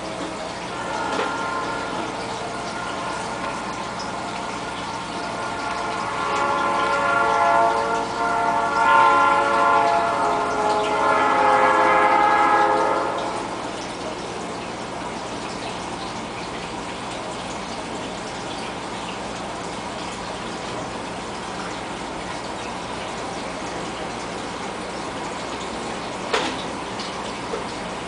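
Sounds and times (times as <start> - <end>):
chord of steady tones: 0.0 - 15.1
aquarium filter water splashing: 0.0 - 28.0.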